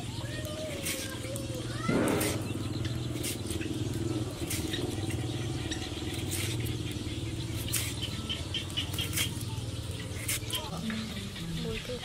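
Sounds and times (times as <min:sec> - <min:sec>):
low mechanical hum: 0:00.0 - 0:12.0
knife cutting banana skin: 0:00.4 - 0:03.6, 0:04.3 - 0:05.1, 0:06.1 - 0:06.8, 0:07.4 - 0:10.9.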